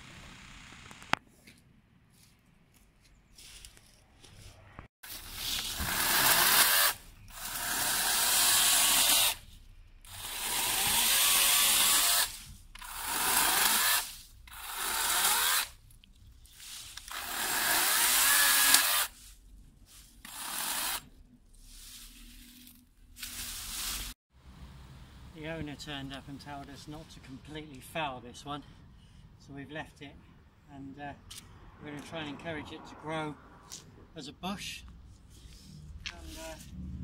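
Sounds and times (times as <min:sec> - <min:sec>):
electric chainsaw cutting branches: 0:05.1 - 0:09.4, 0:10.0 - 0:15.8, 0:17.0 - 0:19.1, 0:20.3 - 0:21.0.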